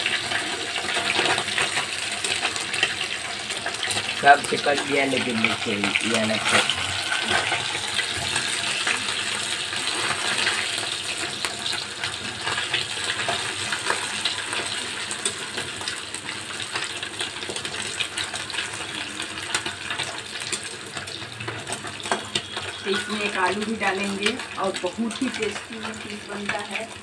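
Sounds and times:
fish sizzling in hot oil: 0.0s - 27.0s
spatula moving in pan: 0.1s - 16.2s.

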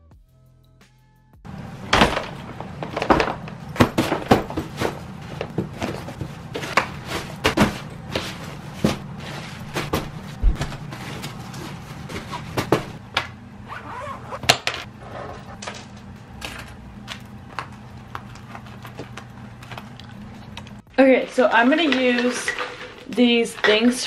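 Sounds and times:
steady low hum: 1.4s - 21.1s
packing knocks clicks and rustles: 1.9s - 13.0s.

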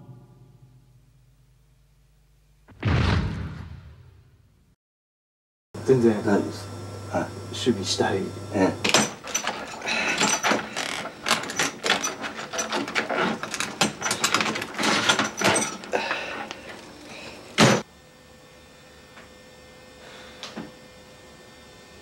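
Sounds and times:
faint steady hum: 0.0s - 2.7s
loud thump: 2.7s - 4.4s.

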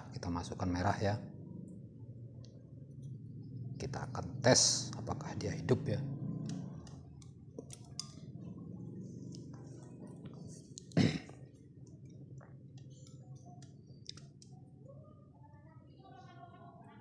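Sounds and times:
low steady hum: 0.0s - 17.0s
wires being twisted clicks: 6.4s - 8.2s.

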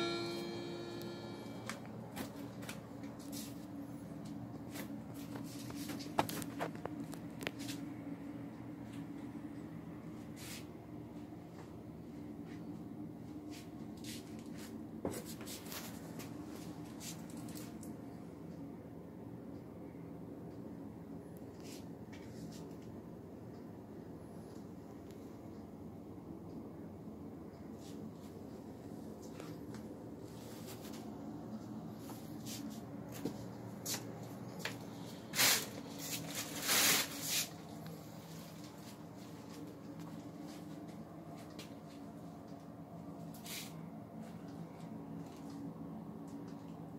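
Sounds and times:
steady low hum: 0.0s - 46.9s
rustling and brushing: 3.2s - 3.7s, 13.5s - 17.7s, 30.2s - 31.1s, 31.9s - 39.5s, 43.4s - 43.8s.

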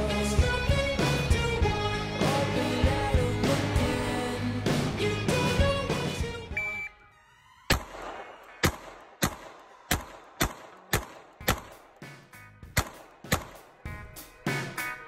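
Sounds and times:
pistol shots: 7.7s - 12.0s, 12.8s - 13.7s.

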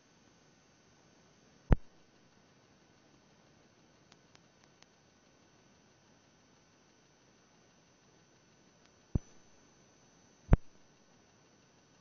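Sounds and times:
sharp thump on microphone: 9.2s - 9.4s, 10.5s - 10.7s.

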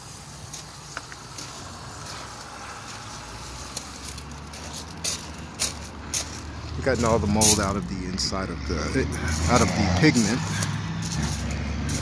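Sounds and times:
low engine rumble: 0.1s - 12.0s.

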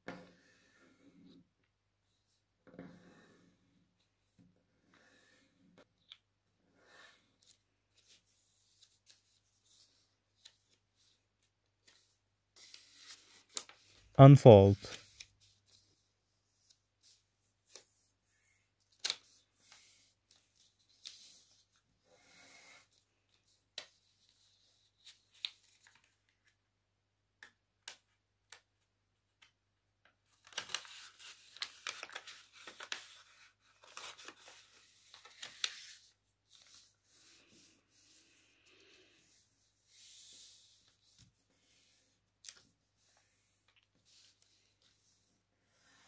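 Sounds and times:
paper crackling and rustling: 30.3s - 37.3s.

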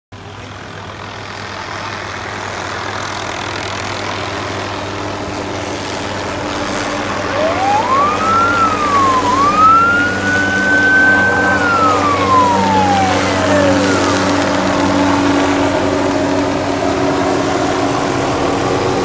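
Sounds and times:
helicopter flying low: 0.2s - 19.0s
siren wailing: 6.8s - 16.7s.

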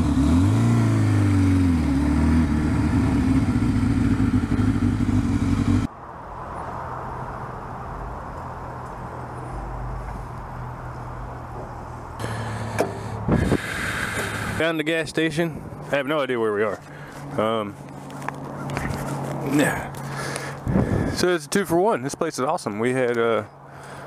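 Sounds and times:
motorcycle engine pulling away: 0.0s - 5.9s
low hum: 0.0s - 14.6s.

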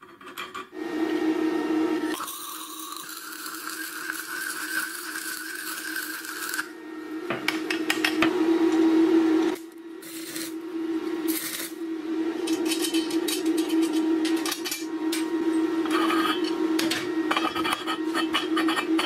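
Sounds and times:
welding arc crackling: 2.2s - 6.7s, 9.6s - 10.6s, 11.3s - 11.8s.

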